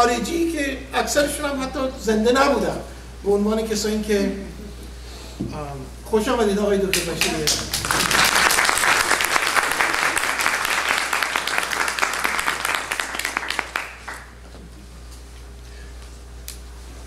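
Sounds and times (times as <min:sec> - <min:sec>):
audience applauding: 0:06.9 - 0:14.4.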